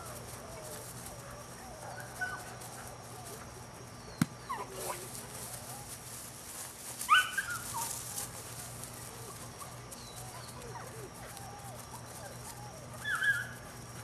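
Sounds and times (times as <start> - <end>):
puppy yipping and whining: 7.1 - 8.0, 10.4 - 13.6.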